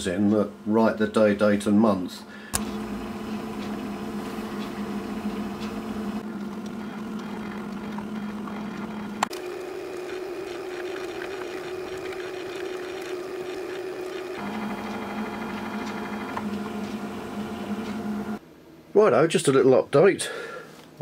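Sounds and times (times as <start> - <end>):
stepper motors humming: 2.5 - 18.4.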